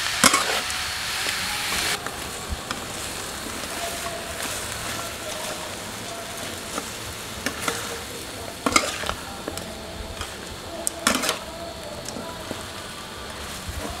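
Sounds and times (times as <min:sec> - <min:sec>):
meat sizzling in a wok: 0:00.0 - 0:14.0
metal spatula scraping a pan: 0:00.2 - 0:02.0, 0:02.7 - 0:11.6.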